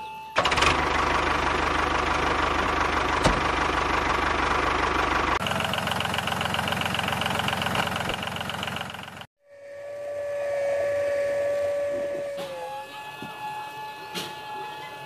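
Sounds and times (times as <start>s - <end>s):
model tractor engines running: 0.4s - 9.3s
thin high whine: 9.4s - 15.0s.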